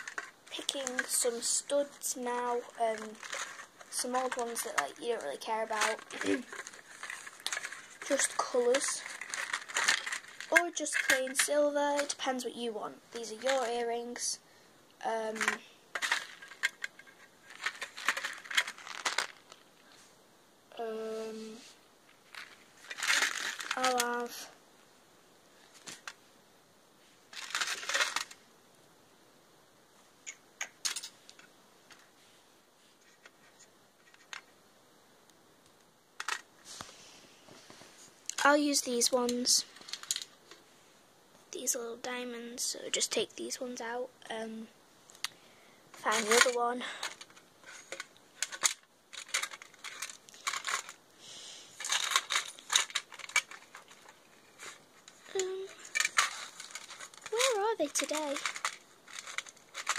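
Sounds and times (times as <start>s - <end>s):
plastic bags crinkling: 0.0s - 12.2s, 15.4s - 19.8s, 22.2s - 24.4s, 27.3s - 28.4s, 39.7s - 40.3s, 46.0s - 51.0s, 51.8s - 59.9s
handling rustle: 0.0s - 12.4s, 15.3s - 20.0s, 21.0s - 24.5s, 25.6s - 26.2s, 27.1s - 28.4s, 36.2s - 40.7s, 45.9s - 59.9s
soft hiss: 0.0s - 59.9s.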